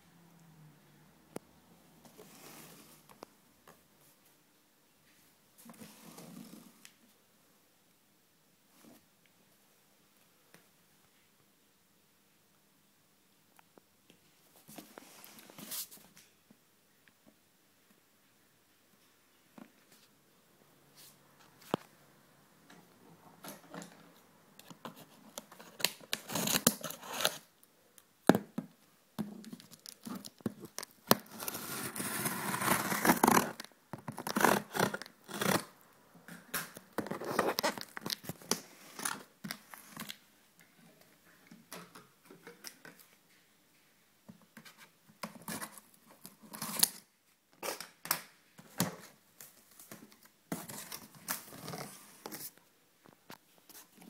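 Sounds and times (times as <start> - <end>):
packing tape ripping: 25.7 - 27.4, 29.7 - 35.7
cardboard box scraping and tearing: 31.2 - 33.6.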